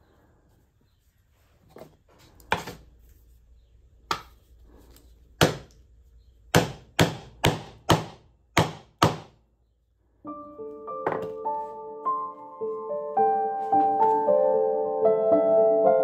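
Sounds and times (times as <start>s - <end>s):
mallet striking chisel into wood: 6.5s - 9.4s
piano music: 10.2s - 16.0s.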